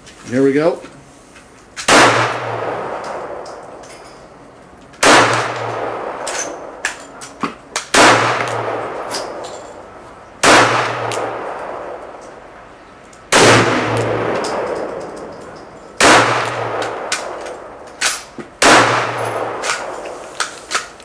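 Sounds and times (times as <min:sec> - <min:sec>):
pistol shots echoing: 0:01.8 - 0:03.8, 0:05.0 - 0:07.2, 0:07.8 - 0:12.5, 0:13.3 - 0:20.3.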